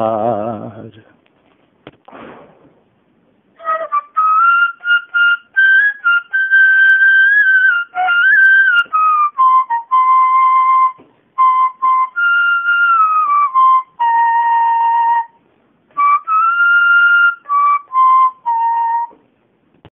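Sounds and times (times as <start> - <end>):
solo flute melody: 3.6 - 19.2.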